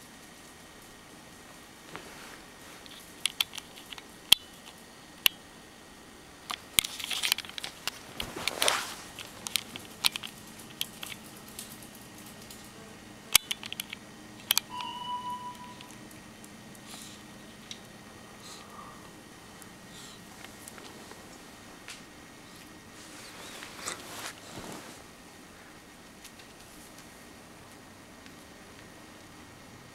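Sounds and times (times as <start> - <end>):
short high tone: 14.7 - 16.0.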